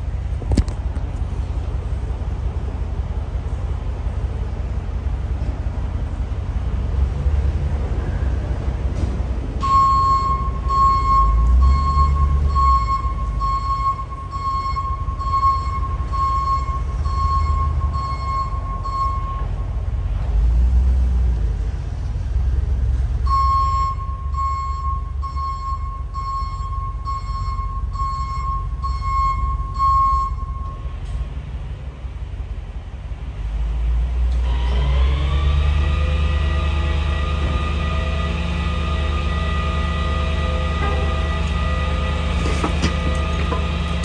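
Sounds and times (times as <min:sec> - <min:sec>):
truck engine running: 0:00.0 - 0:44.0
truck reverse alarm beeping: 0:09.6 - 0:19.8, 0:23.2 - 0:30.9.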